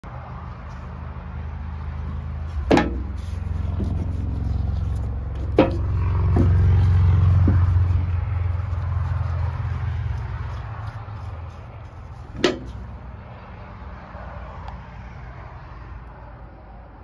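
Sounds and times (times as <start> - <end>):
low mechanical hum: 0.0 - 13.6.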